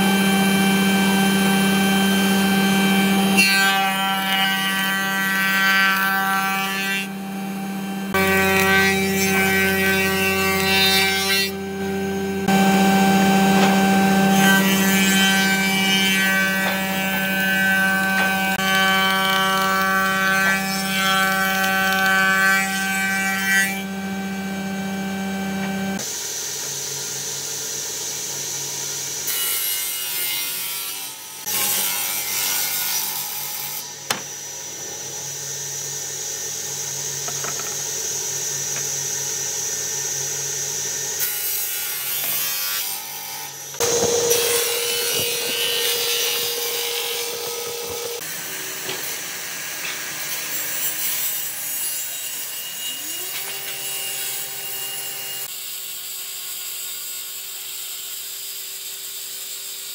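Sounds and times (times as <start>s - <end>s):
saw blades cutting boards: 0.0s - 58.3s
circular saw cutting wood: 0.0s - 59.9s
machine humming: 7.2s - 19.9s, 43.7s - 48.7s.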